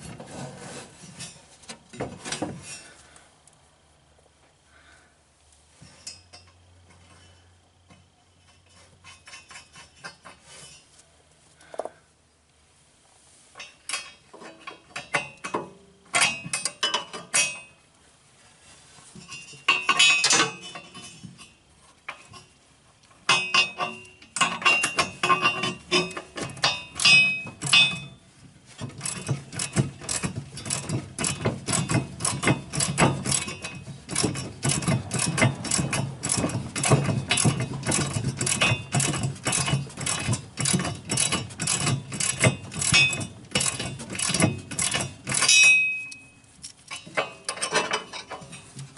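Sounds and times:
metal clinks: 0:19.2 - 0:22.5, 0:23.3 - 0:28.2, 0:29.0 - 0:48.7.

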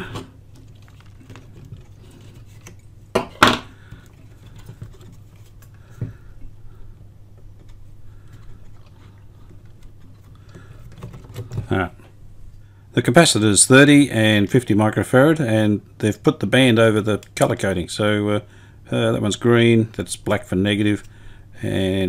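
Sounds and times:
light tapping and handling: 0:07.3 - 0:12.2.

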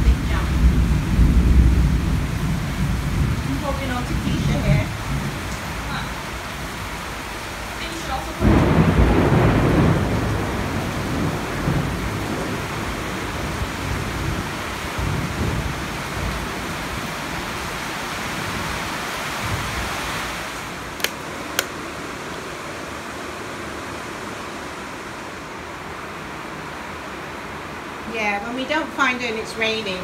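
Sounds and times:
thunder rumble: 0:00.0 - 0:06.8, 0:07.8 - 0:18.8
heavy rain pouring: 0:00.0 - 0:30.0
sharp clicks: 0:21.0 - 0:21.8.

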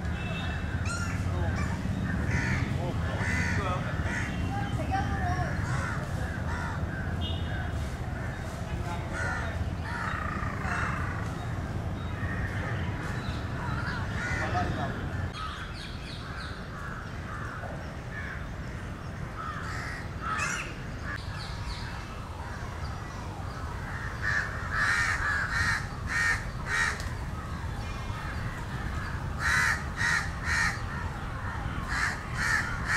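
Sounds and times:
low background noise: 0:00.0 - 0:32.9
crows cawing: 0:00.4 - 0:11.4, 0:12.2 - 0:21.2, 0:23.8 - 0:32.9.

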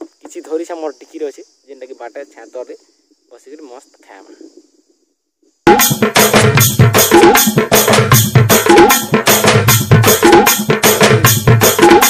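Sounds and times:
background music: 0:05.7 - 0:12.0
steady drum beat: 0:05.7 - 0:12.0.

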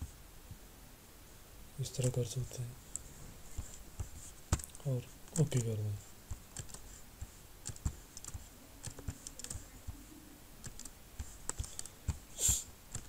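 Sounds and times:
mouse and keyboard clicking: 0:02.9 - 0:05.8, 0:06.4 - 0:06.9, 0:07.6 - 0:10.0, 0:10.6 - 0:12.2.

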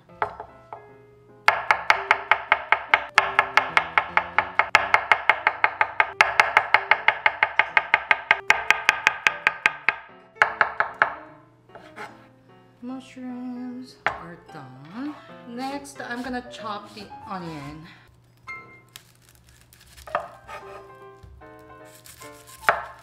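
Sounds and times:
soft background music: 0:00.0 - 0:23.0
knife slicing on wooden board: 0:11.7 - 0:12.2, 0:19.5 - 0:20.9, 0:21.9 - 0:23.0.

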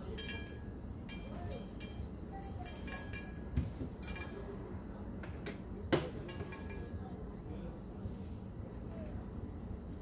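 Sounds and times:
faint ringing clinks: 0:00.0 - 0:04.7, 0:06.2 - 0:07.0.

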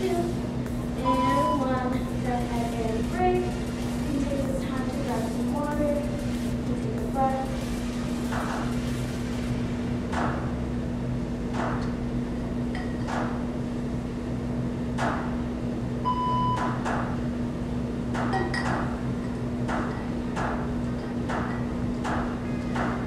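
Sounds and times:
steady low hum: 0:00.0 - 0:23.0
short electronic beep: 0:16.1 - 0:16.6.

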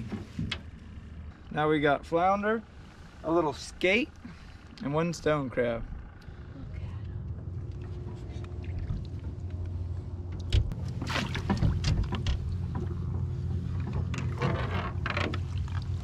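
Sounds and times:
steady low hum: 0:00.0 - 0:16.0
net splashing in water: 0:10.9 - 0:11.8.

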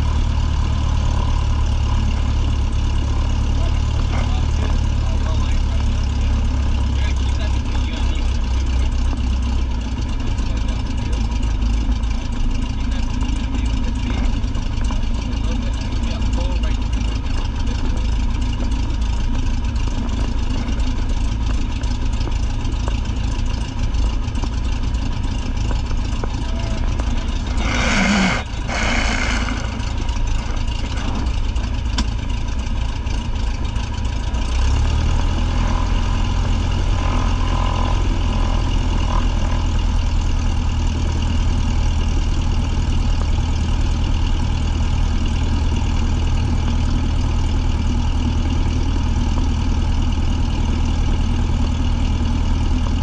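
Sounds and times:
light airplane engine droning: 0:00.0 - 0:34.6.

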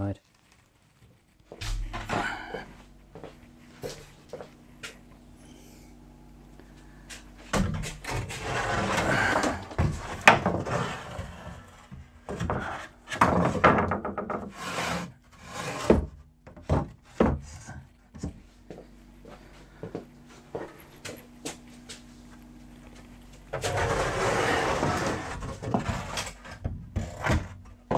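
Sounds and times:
wood scraping on wood: 0:07.9 - 0:18.8, 0:20.4 - 0:27.9.

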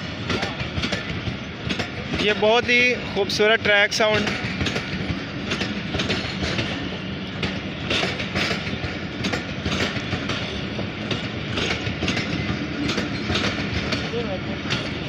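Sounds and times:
train wheels rumbling on rails: 0:00.0 - 0:15.0
wheels clickety-clack on rail joints: 0:00.0 - 0:15.0.

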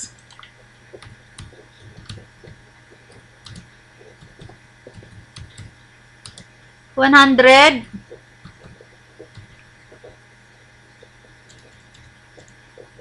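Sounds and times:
low steady hum: 0:00.0 - 0:13.0
keyboard and mouse clicking: 0:03.1 - 0:06.5, 0:11.4 - 0:12.6.

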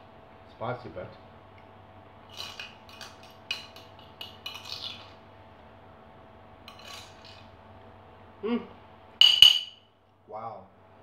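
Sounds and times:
cutlery clinking on ceramic plate: 0:02.3 - 0:05.0, 0:09.2 - 0:09.8.

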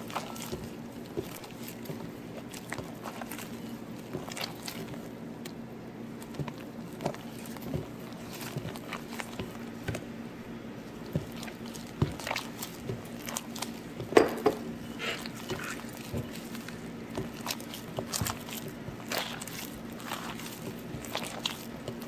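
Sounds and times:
wet squelches of batter mixing: 0:00.0 - 0:22.0
knock on glass bowl: 0:14.2 - 0:14.6.

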